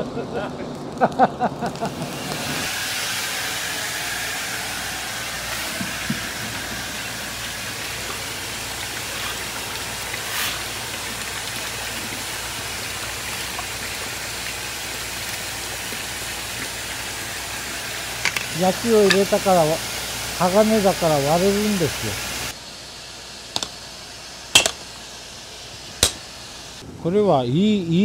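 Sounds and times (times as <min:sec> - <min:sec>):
steam hissing: 0:01.8 - 0:26.8
water running into trough: 0:02.6 - 0:22.5.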